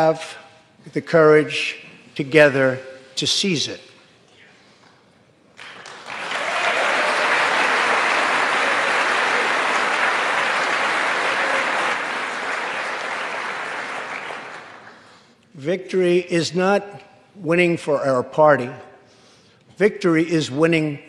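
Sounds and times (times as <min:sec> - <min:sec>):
audience applauding: 0:05.6 - 0:15.0.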